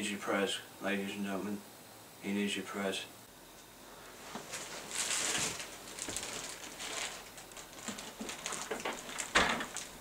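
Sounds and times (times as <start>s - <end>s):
plastic bag crinkling: 4.2s - 10.0s.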